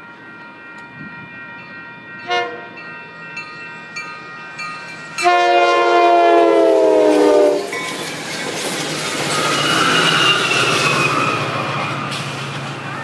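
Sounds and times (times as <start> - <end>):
train horn blasts: 2.2 - 2.8, 5.2 - 7.7.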